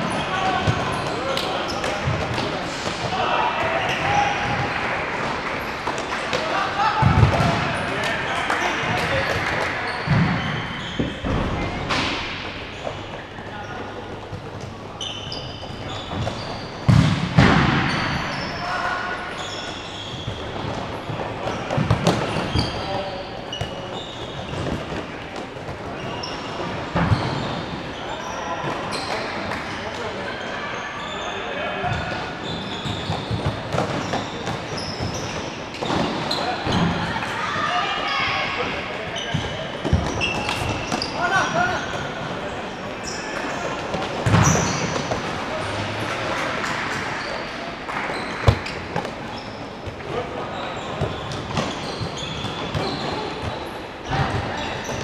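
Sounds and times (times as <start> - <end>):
shoes squeaking on court: 5.6 - 46.1, 47.1 - 55.0
ball kicked and bouncing indoors: 7.0 - 7.7, 14.2 - 18.2, 20.2 - 22.8, 26.6 - 27.6, 39.3 - 41.1, 43.9 - 45.3
short high squeaks: 15.0 - 16.9.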